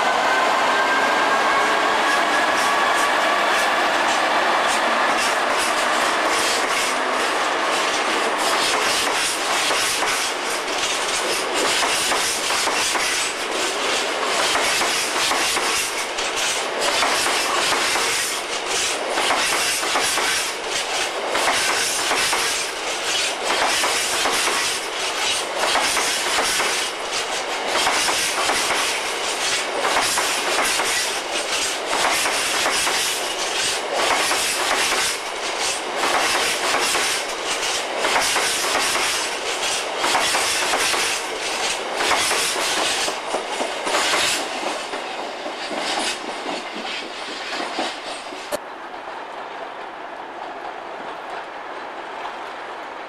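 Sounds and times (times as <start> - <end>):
freight train passing: 0.0 - 53.0
wheels clattering over rail joints: 7.6 - 48.6.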